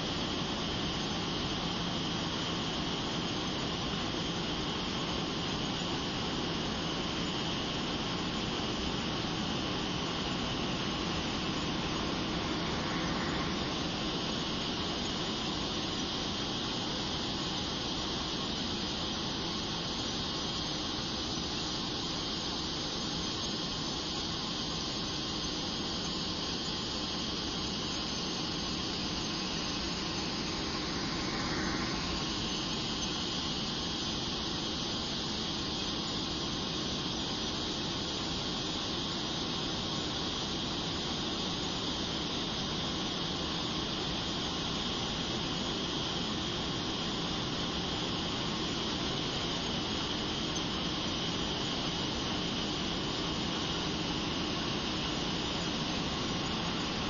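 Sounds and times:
high-pitched jet whine: 0:00.0 - 0:57.0
jet engine and airflow rush: 0:07.3 - 0:21.5, 0:22.1 - 0:36.5.

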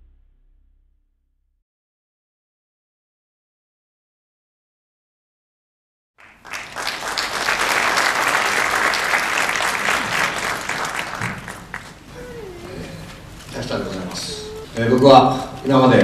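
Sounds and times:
audience applauding: 0:06.2 - 0:12.8.

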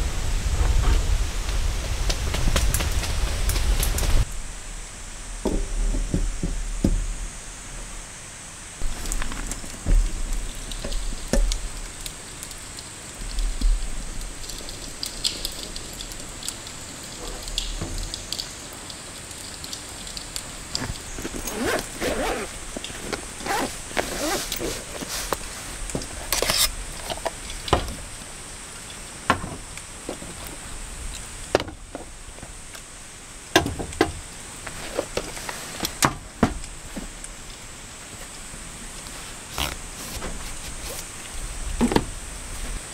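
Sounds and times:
wind noise: 0:00.0 - 0:18.3, 0:20.0 - 0:33.0
steady rain: 0:00.0 - 0:42.9
case being unzipped: 0:20.8 - 0:25.4.

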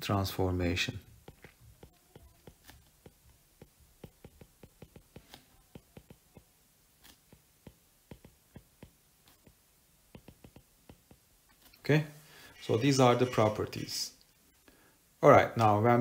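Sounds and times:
stylus tapping on glass screen: 0:01.2 - 0:06.5, 0:07.3 - 0:11.2.

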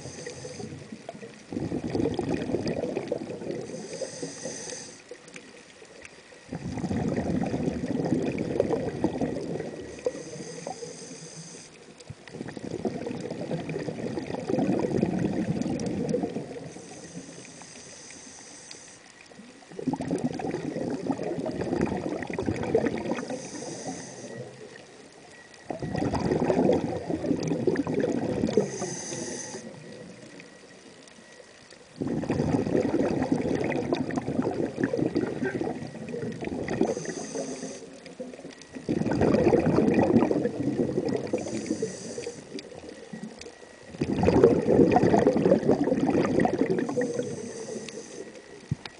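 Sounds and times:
regulator inhalation hissing: 0:00.0 - 0:01.0, 0:03.6 - 0:05.2, 0:09.8 - 0:11.9, 0:16.6 - 0:19.1, 0:23.0 - 0:24.7, 0:28.5 - 0:30.0, 0:36.7 - 0:38.0, 0:41.3 - 0:42.8, 0:46.8 - 0:48.6
regulator exhalation bubbling: 0:01.5 - 0:04.8, 0:06.5 - 0:10.8, 0:12.3 - 0:17.4, 0:19.7 - 0:24.7, 0:25.7 - 0:29.9, 0:32.0 - 0:38.0, 0:38.7 - 0:43.2, 0:43.9 - 0:48.8.

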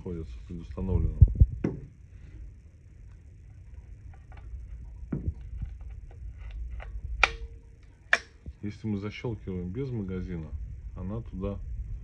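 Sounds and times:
air rifle handling clicks and knocks: 0:04.1 - 0:08.6.

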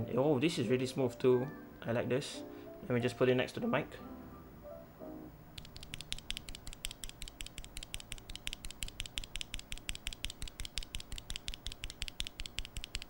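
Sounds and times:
keyboard switch clicking: 0:05.6 - 0:13.0.

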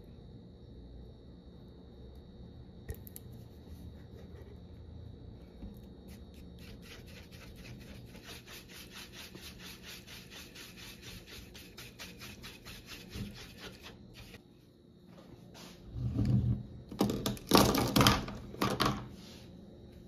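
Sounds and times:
spatula scraping plastic bowl: 0:06.1 - 0:14.4.

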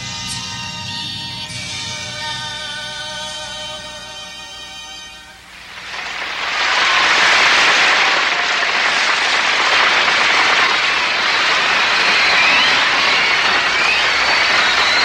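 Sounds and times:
crowd applauding and cheering: 0:05.6 - 0:15.0.

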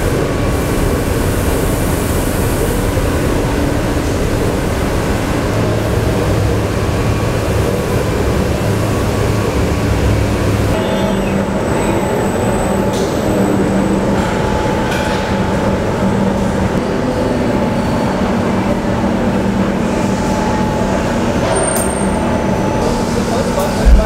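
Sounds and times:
assembly line machinery drone: 0:22.2 - 0:24.0.

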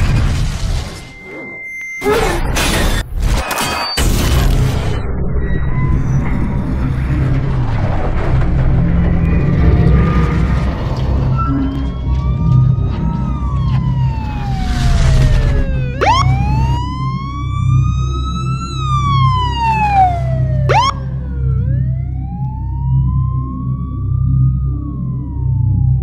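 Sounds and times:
police siren wailing: 0:11.2 - 0:26.0
siren whoops: 0:11.3 - 0:26.0.

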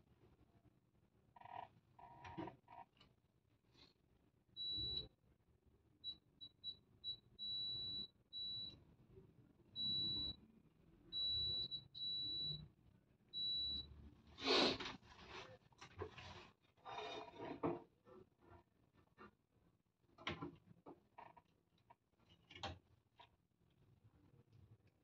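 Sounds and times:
multimeter continuity beeps: 0:04.6 - 0:05.1, 0:06.0 - 0:08.8, 0:09.7 - 0:10.4, 0:11.1 - 0:12.7, 0:13.4 - 0:14.0.

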